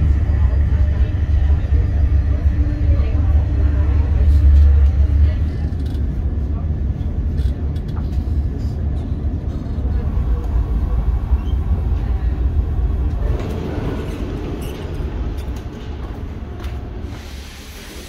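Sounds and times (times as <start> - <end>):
train wheels rumbling: 0.0 - 18.0
train rushing noise: 7.2 - 18.0.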